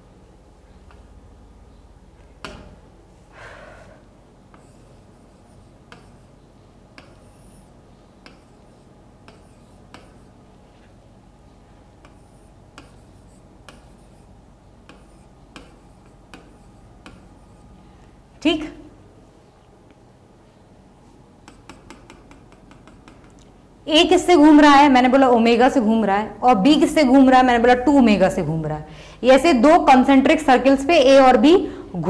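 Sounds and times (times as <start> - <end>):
low steady hum: 0.0 - 32.0
pen tapping on a board: 2.4 - 2.8, 5.9 - 6.2, 6.9 - 7.5, 8.2 - 8.6, 9.2 - 10.3, 12.0 - 14.1, 14.8 - 17.3, 21.4 - 23.4
pen scratch: 4.5 - 10.9, 12.0 - 17.7, 21.4 - 23.3.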